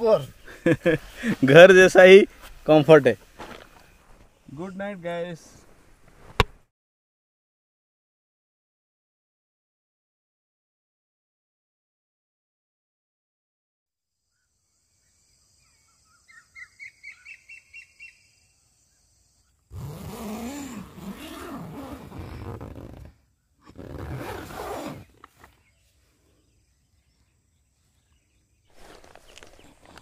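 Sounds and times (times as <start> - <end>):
insect hum: 0.0 - 6.1, 14.0 - 30.0
harsh drawn-out bird calls: 14.3 - 22.3.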